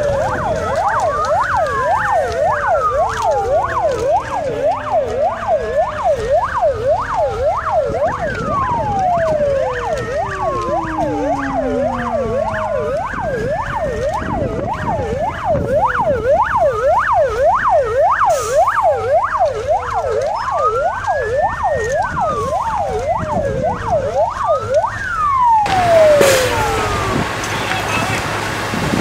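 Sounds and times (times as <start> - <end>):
siren fast yelp: 0.0 - 28.3
siren slow wail: 0.0 - 29.0
rush of noise: 25.7 - 29.0.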